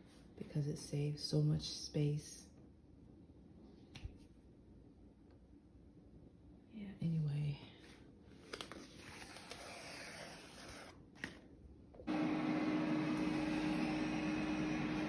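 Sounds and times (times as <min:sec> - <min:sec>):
steady machine hum: 0:12.1 - 0:15.0.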